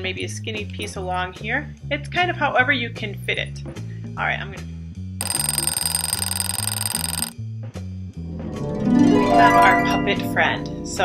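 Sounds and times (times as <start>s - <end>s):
alarm clock bell ringing: 5.2s - 7.3s.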